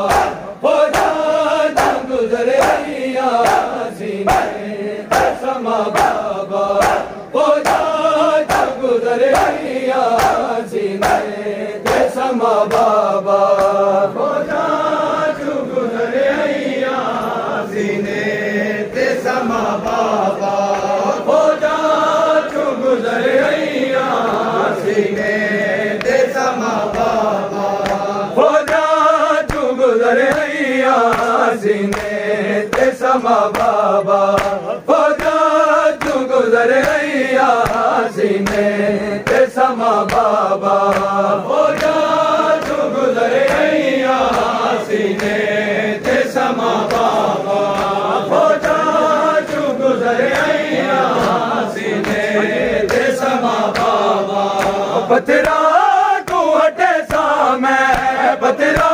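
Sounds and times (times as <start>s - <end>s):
chest-beating slaps: 0.0s - 13.9s, 26.0s - 58.9s
men chanting in chorus: 0.0s - 58.9s.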